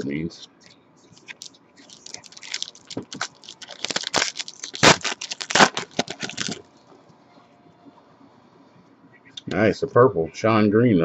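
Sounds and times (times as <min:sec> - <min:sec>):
foil wrapper crinkling: 0:01.2 - 0:06.7.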